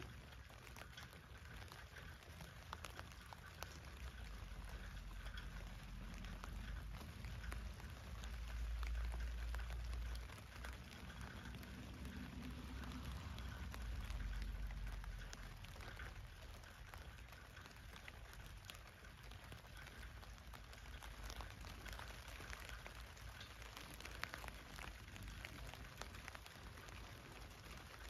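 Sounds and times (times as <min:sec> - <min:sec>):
rain falling on a tent: 0:00.0 - 0:28.0.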